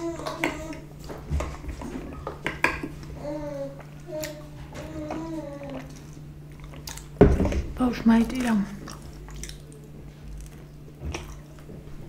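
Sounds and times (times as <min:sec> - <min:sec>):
steady low hum: 0:00.0 - 0:12.0
child talking: 0:03.2 - 0:05.9.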